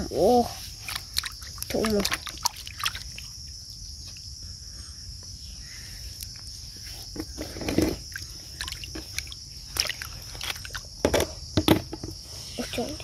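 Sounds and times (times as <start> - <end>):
water splashes and squelches: 0.0 - 4.4, 6.1 - 11.0
crickets droning: 0.0 - 13.0.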